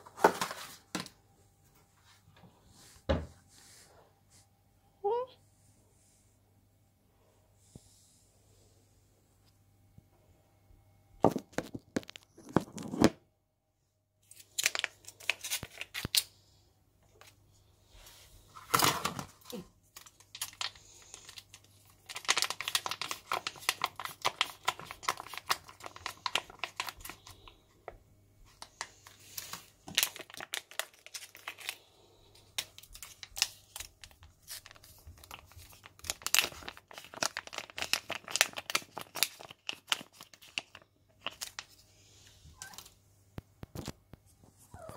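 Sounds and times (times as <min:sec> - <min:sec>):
rustling and crinkling at microphone: 0:11.2 - 0:13.2, 0:40.4 - 0:44.9.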